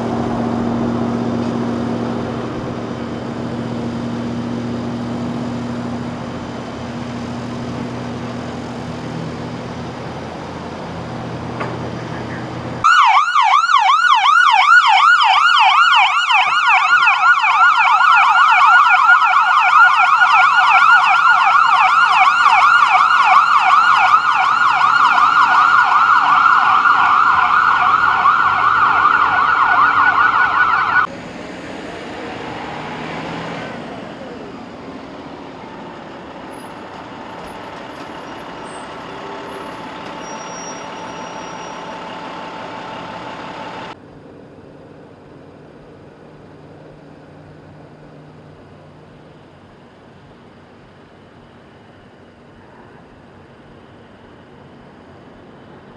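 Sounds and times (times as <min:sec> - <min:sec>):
vehicle engine idling: 0:00.0 - 0:12.9, 0:33.8 - 0:55.9.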